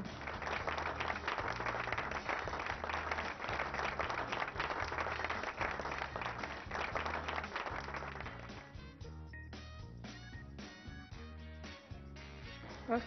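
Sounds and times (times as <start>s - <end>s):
applause: 0.0s - 8.8s
background music with pulsing bass: 0.0s - 13.0s.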